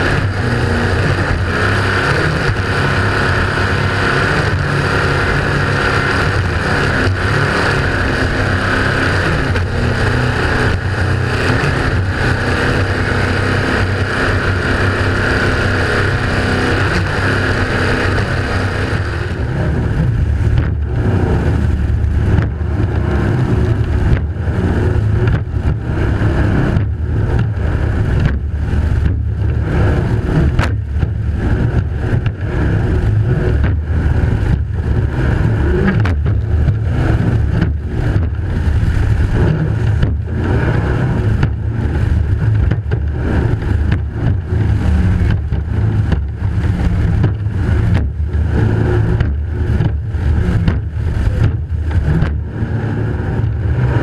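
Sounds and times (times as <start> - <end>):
powerboat engines running hard: 0.0 - 54.0
rushing wind: 0.0 - 54.0
water noise: 0.0 - 54.0.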